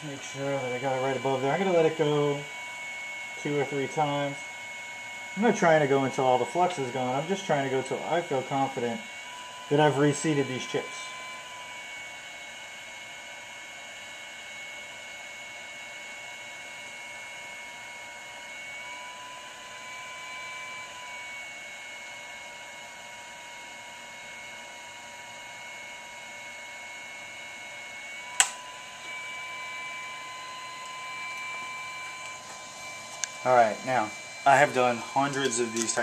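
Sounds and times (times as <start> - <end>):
fan whine: 0.0 - 36.0
heating lamp click: 28.3 - 28.6, 30.8 - 33.4.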